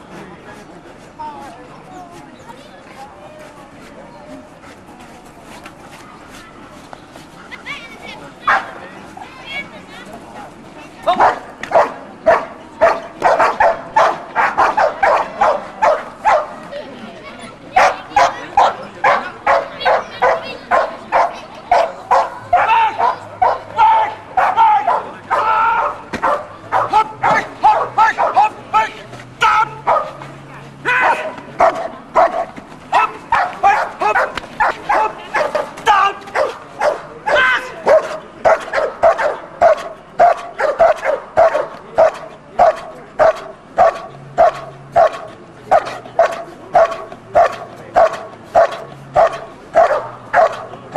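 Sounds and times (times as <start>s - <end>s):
dog barking rapidly: 8.5s - 8.7s, 11.2s - 16.6s, 17.8s - 28.6s, 29.8s - 30.2s, 31.0s - 50.7s.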